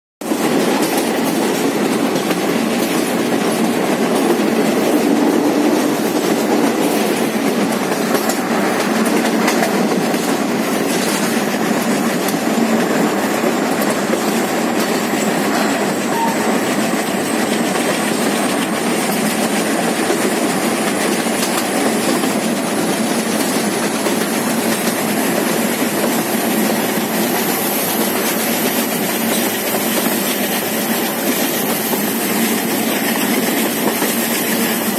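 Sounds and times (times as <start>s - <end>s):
train wheels rumbling on rails: 0.2s - 34.9s
faint rail clicks: 7.6s - 13.0s, 17.5s - 34.9s.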